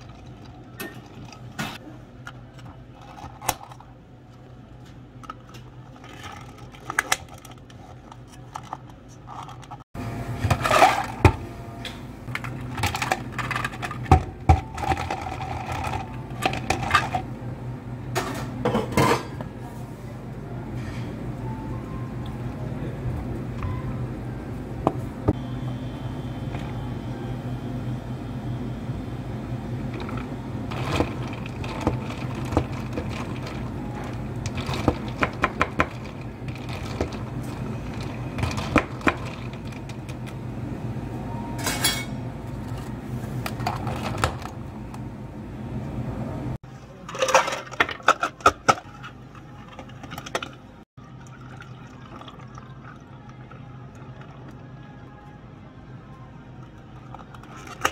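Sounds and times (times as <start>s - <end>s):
ice clattering: 5.4s - 9.8s, 12.3s - 17.2s, 29.9s - 40.3s, 47.0s - 54.6s, 56.7s - 57.9s
ice clinking in plastic cup: 30.0s - 40.0s
tea pouring over ice: 51.0s - 54.8s.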